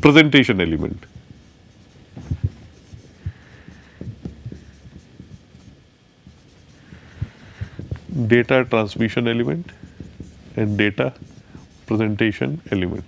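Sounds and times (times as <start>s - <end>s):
marker tip scratching: 0.7s - 13.0s
marker knocks on whiteboard: 2.2s - 5.7s, 8.9s - 11.4s.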